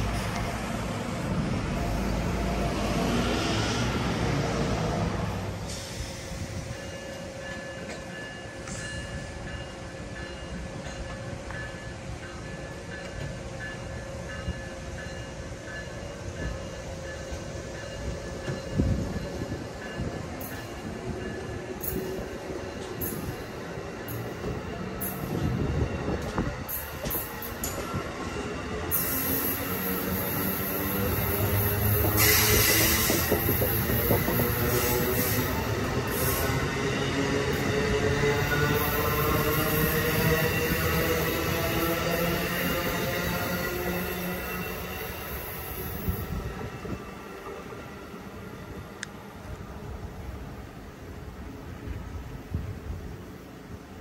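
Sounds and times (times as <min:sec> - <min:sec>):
passenger train rumbling past: 0:00.0 - 0:54.0.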